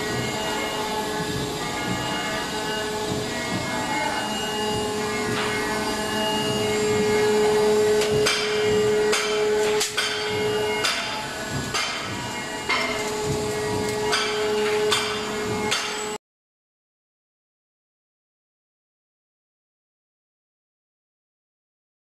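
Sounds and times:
embossing machine humming and whining: 0.0 - 16.2.

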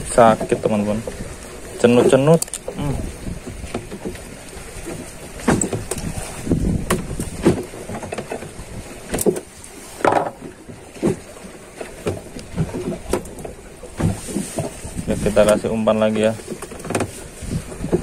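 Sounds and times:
water slapping against boat hull: 0.0 - 18.0
fishing pliers clicking: 2.4 - 2.7.

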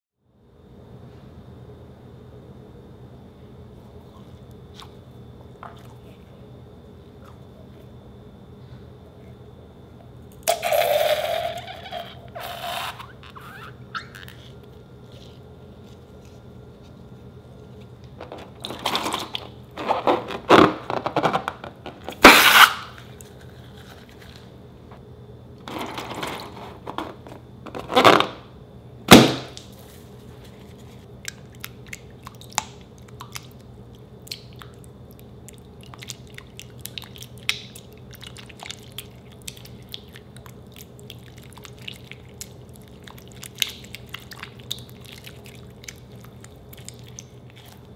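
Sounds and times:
slime squelching: 29.6 - 47.9
spatula stirring sticky slime: 34.3 - 47.9.

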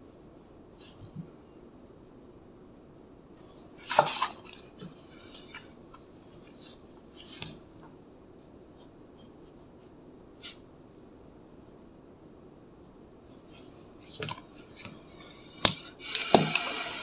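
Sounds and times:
paper rustling and sliding: 3.5 - 7.6.

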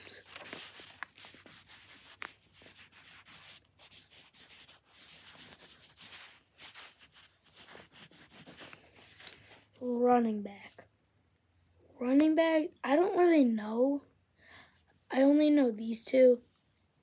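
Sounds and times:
pencil scratching on paper: 0.0 - 9.6.

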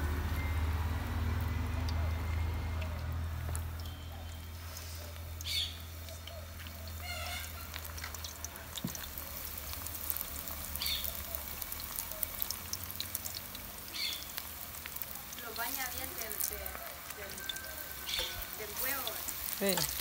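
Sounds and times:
fish frying in hot oil: 0.0 - 20.0.

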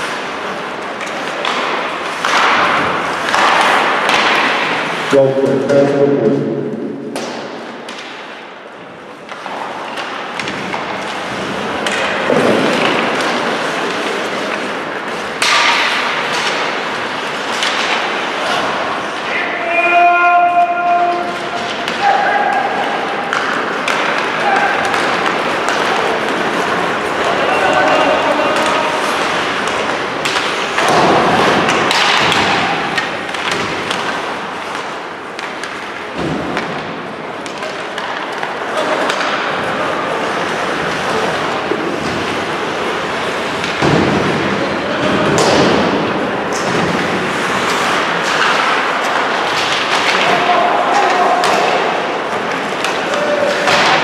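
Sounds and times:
skates scraping ice: 0.0 - 6.0, 7.1 - 54.0
sticks and puck clacking: 0.0 - 54.0.

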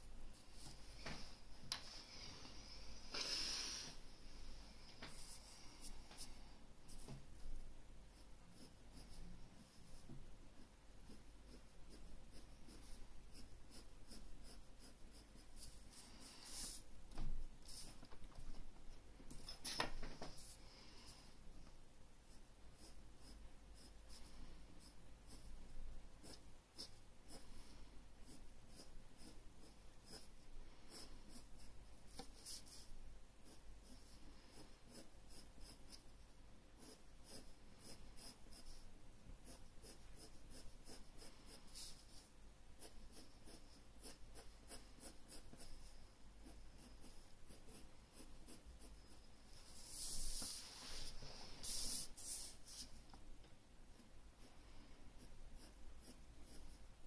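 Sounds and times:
pencil scratching on paper: 8.2 - 10.1, 11.0 - 16.9, 17.6 - 18.0, 22.3 - 25.6, 26.2 - 36.0, 36.8 - 52.9, 54.4 - 56.9.

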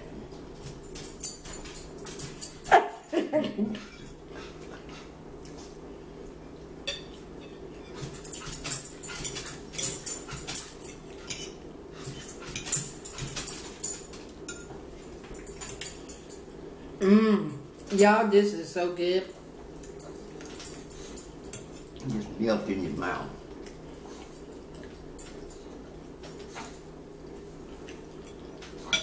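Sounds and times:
forks clicking on plates: 0.6 - 3.0, 6.9 - 16.5, 19.8 - 22.3, 23.6 - 29.0
chewing: 19.6 - 22.4, 23.4 - 29.0.

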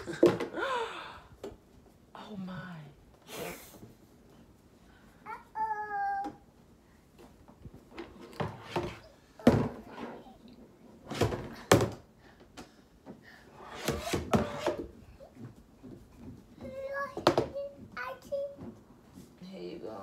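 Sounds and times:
hollow plastic knocks and thumps: 0.0 - 0.6, 7.2 - 10.1, 11.1 - 13.2, 13.9 - 18.8.

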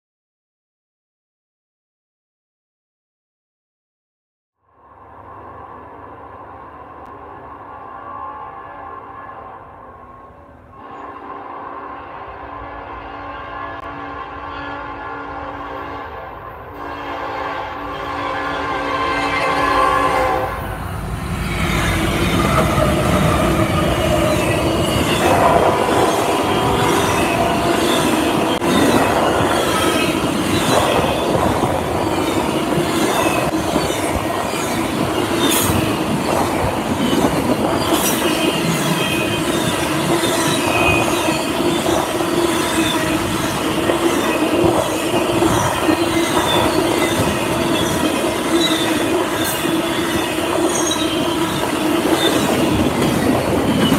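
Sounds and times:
diesel locomotives passing: 4.7 - 53.9
freight cars rolling on rails: 19.1 - 53.9
high wheel squeals: 37.0 - 53.9.

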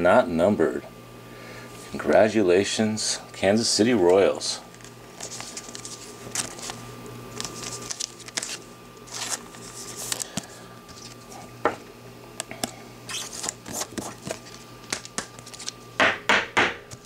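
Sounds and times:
cards rustling and sliding: 4.1 - 11.5, 12.5 - 15.8.

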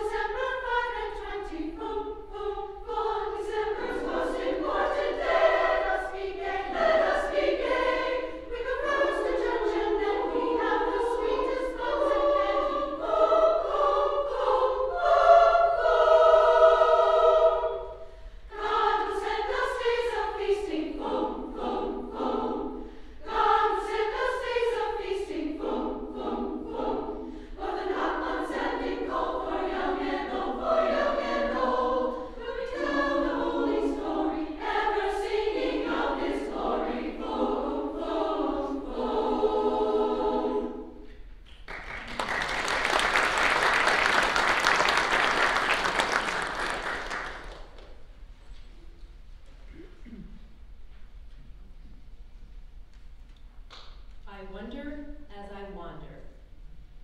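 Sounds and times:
women's choir singing: 0.0 - 47.9
audience applause: 41.7 - 47.6.

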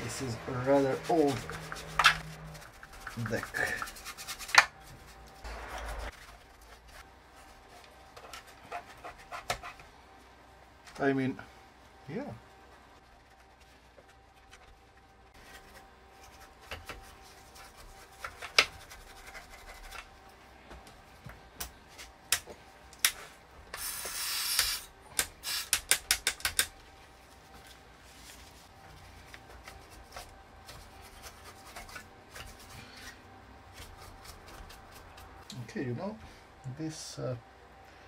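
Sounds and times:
cloth and brush rubbing circuit board: 0.0 - 9.8, 12.4 - 20.1
spray can hissing: 23.8 - 24.8, 25.4 - 25.8.

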